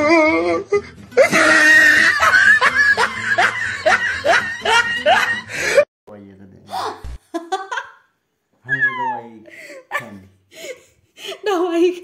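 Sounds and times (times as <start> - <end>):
young man laughing hard: 1.2 - 5.8.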